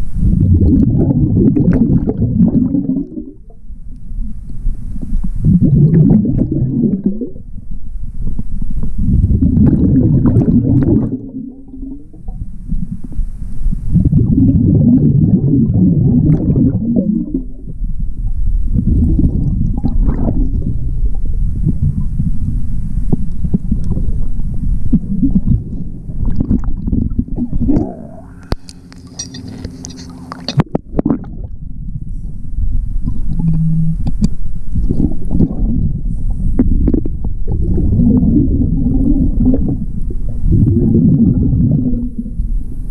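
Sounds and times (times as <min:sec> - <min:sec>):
underwater bubbles gurgling: 0:00.0 - 0:42.9
faint steady tones: 0:20.8 - 0:38.2.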